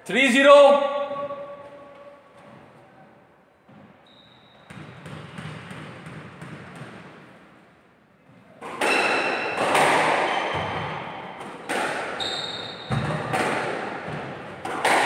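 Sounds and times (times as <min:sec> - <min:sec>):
squash ball bouncing on floor: 0:04.6 - 0:07.3, 0:08.6 - 0:15.0
racquet and wall hits: 0:04.6 - 0:07.4, 0:08.6 - 0:15.0
shoes squeaking on wooden floor: 0:12.2 - 0:13.2.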